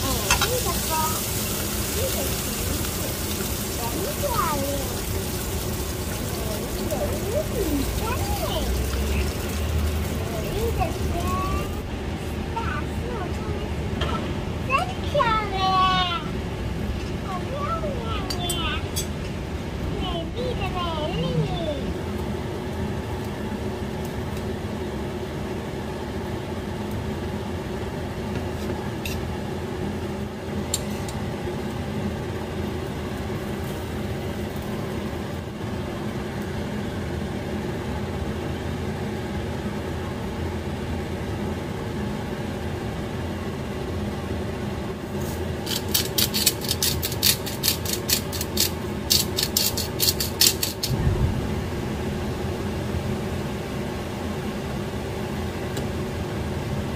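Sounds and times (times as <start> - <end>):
electric fan hum: 0.0 - 56.9
metal tongs clinking on saucepan: 0.2 - 0.6.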